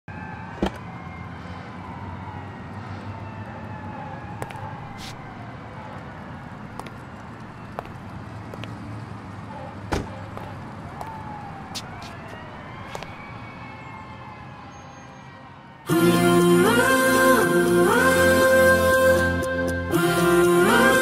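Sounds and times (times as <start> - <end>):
distant siren wailing: 0.1 - 19.4
low city hum: 0.1 - 21.0.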